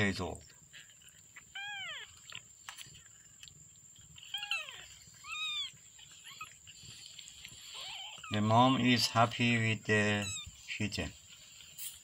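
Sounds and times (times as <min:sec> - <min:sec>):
kittens mewing: 0:01.3 - 0:02.5, 0:04.1 - 0:08.9, 0:09.9 - 0:10.7.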